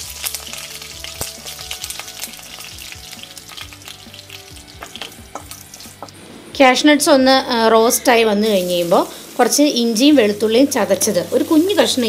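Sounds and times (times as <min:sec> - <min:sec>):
leaves crackling and popping: 0:00.0 - 0:06.0
frying in hot oil hissing: 0:00.0 - 0:12.0.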